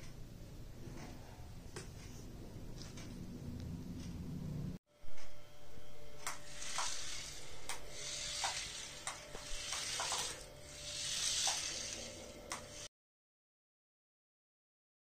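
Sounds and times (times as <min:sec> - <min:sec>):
toy truck motor whirring: 0:06.2 - 0:12.9.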